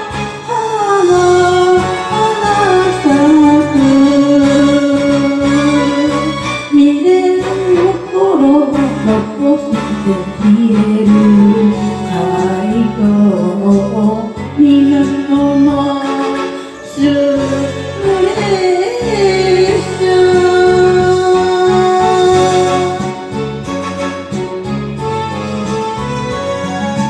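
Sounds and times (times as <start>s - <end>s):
person singing: 0.0s - 23.4s
instrumental accompaniment: 0.0s - 27.0s.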